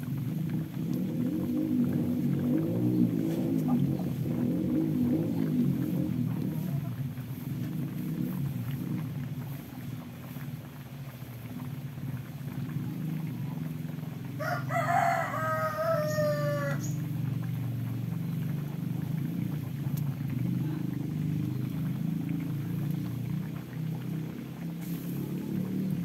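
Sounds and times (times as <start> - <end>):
steady low hum: 0.0 - 14.4
rooster crowing: 14.4 - 17.0.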